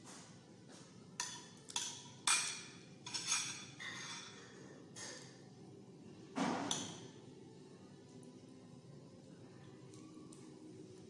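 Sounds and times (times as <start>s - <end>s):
cutlery clinking on a plate: 1.2s - 5.4s, 6.5s - 7.1s.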